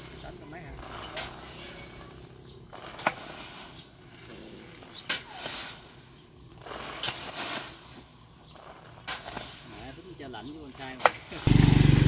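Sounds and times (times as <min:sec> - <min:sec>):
shovel blade scraping: 0:00.0 - 0:10.2
granules sliding and pouring: 0:02.7 - 0:11.5.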